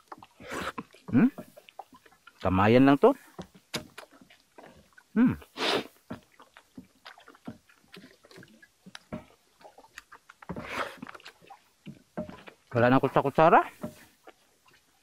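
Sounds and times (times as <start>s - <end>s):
man chewing and lip smacking: 3.5s - 12.6s
sucking intakes of breath: 5.5s - 6.0s.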